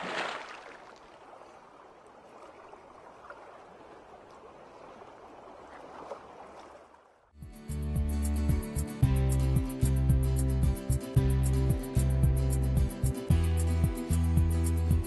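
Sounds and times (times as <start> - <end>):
music with a beat: 7.4 - 15.0.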